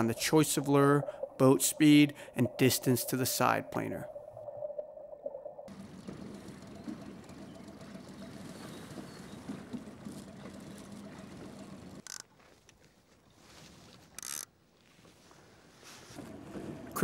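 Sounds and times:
water noise: 0.0 - 12.2
boat motor running: 5.7 - 12.2.

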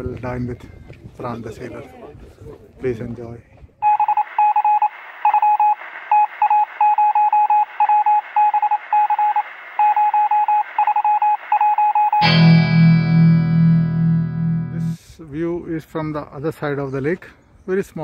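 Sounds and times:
morse code beeping: 3.8 - 15.0
radio hiss: 4.2 - 6.8
guitar music: 12.2 - 15.0.

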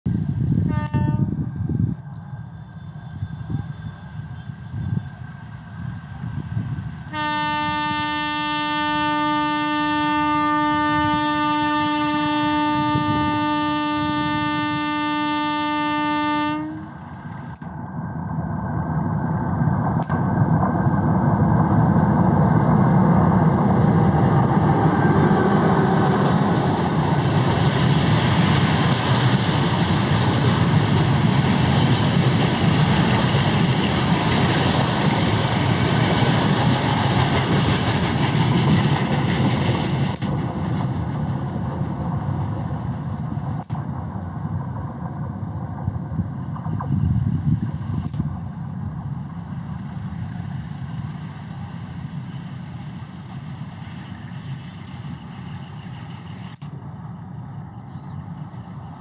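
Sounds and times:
train passing with wheel clatter: 0.1 - 59.0
locomotive horn blast: 0.7 - 1.4, 7.1 - 17.0.

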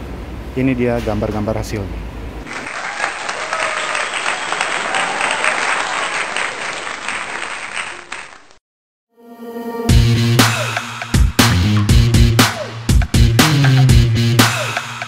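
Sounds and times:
crowd clapping: 2.5 - 8.6.

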